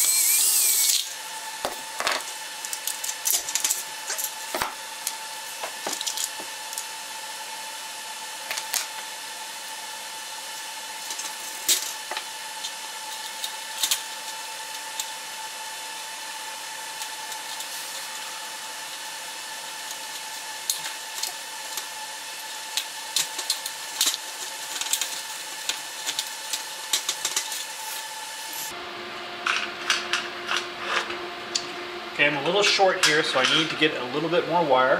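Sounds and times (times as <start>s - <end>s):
high-pitched hum: 0.0s - 7.1s.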